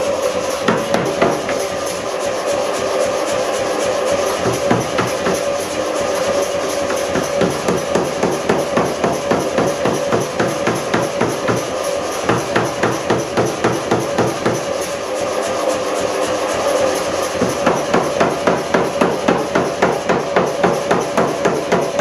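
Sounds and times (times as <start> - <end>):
machine running hum: 0.0 - 22.0
power hammer blows: 0.5 - 2.0, 6.2 - 15.1, 16.5 - 22.0.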